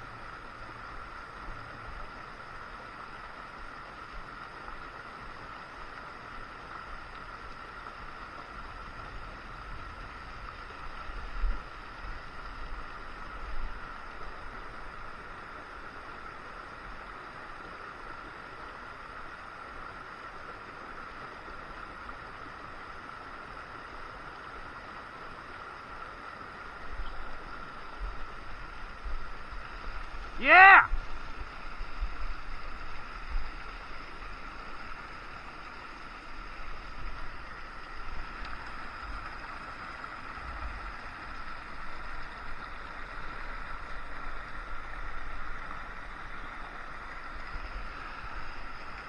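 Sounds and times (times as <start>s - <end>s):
creek water rushing over rocks: 0.0s - 49.0s.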